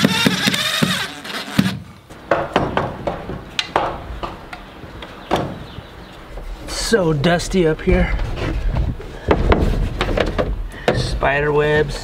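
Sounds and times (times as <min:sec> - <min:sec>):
cordless drill whining: 0:00.0 - 0:01.8.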